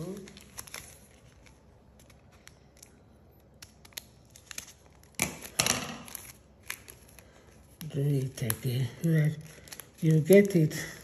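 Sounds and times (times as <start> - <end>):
paper rustling: 0.0 - 3.0.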